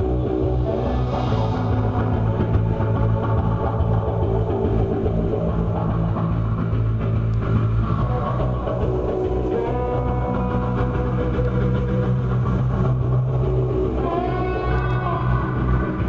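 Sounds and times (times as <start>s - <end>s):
electric bass: 0.0s - 16.0s
electric guitar: 0.0s - 16.0s.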